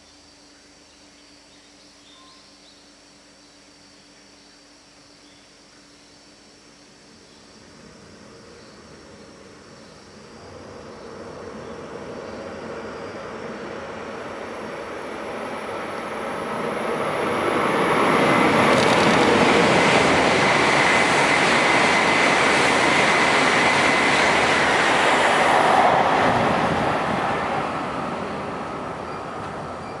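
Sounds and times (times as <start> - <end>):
high-speed train passing: 7.1 - 30.0.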